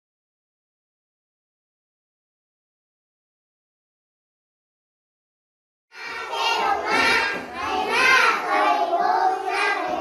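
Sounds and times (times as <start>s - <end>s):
children singing: 5.9s - 10.0s.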